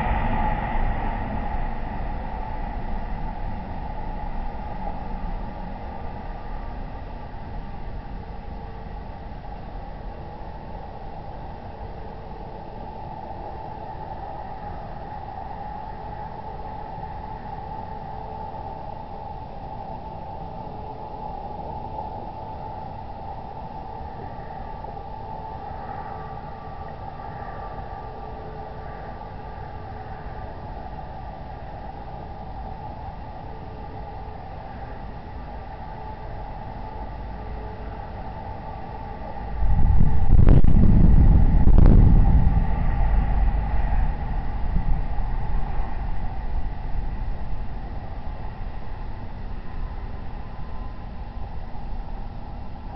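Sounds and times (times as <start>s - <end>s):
low rumble of sonic boom: 0.0s - 8.6s, 39.4s - 52.2s
background hiss and rumble: 0.0s - 52.9s.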